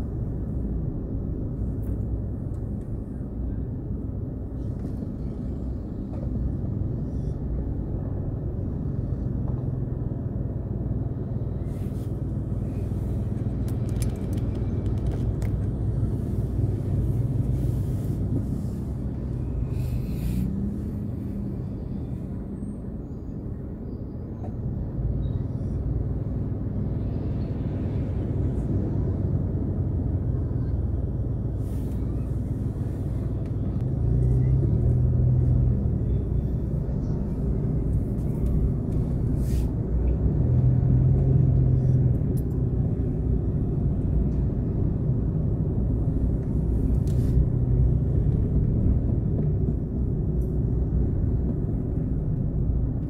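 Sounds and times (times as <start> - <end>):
car engine and tyres rumbling: 0.0 - 53.0.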